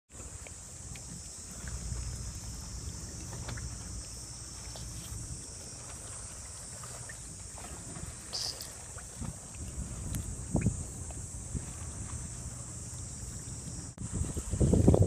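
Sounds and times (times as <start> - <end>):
wind rumbling on microphone: 0.1 - 15.0
steady high hiss: 0.2 - 9.1.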